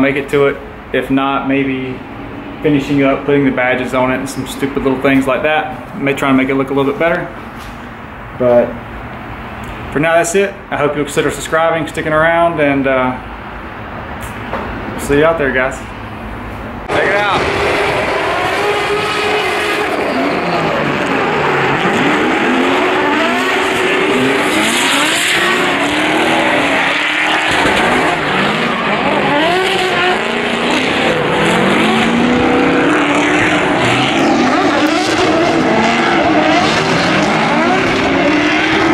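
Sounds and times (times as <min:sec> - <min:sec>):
car engines revving: 0:00.0 - 0:38.9
tyre squeal: 0:18.2 - 0:23.4.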